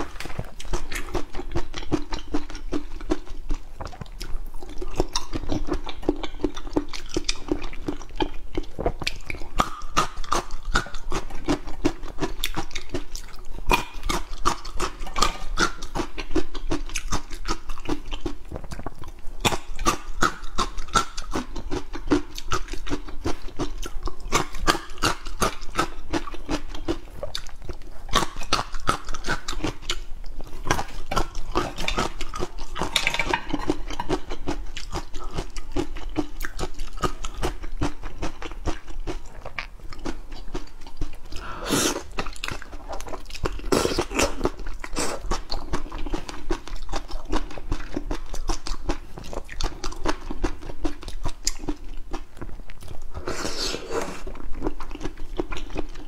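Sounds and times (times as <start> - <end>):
wet mouth clicks: 0.0 - 37.6
person chewing food: 0.0 - 56.0.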